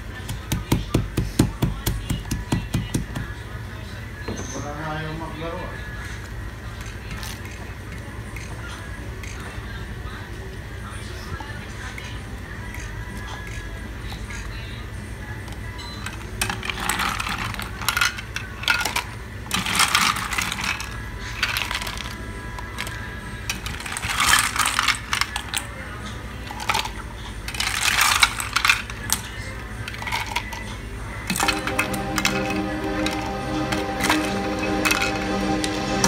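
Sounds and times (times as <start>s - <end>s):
background music: 0.0s - 36.0s
ice cubes clinking into plastic cup: 23.5s - 25.7s.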